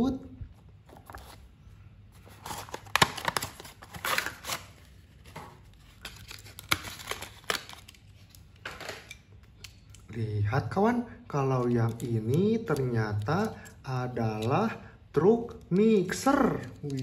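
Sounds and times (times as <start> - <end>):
card and plastic rustling: 0.6 - 9.5.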